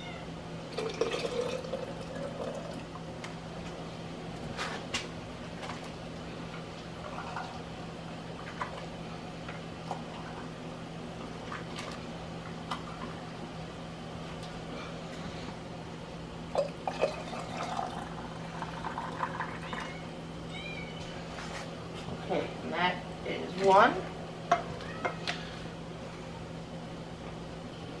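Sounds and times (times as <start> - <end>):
steady low hum: 0.0 - 28.0
hot water pouring into glass jar: 0.7 - 2.8, 16.6 - 19.9.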